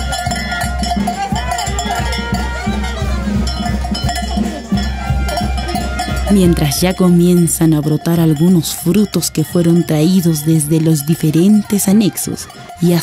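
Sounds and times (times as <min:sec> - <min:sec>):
music with pulsing low beat: 0:00.0 - 0:11.7.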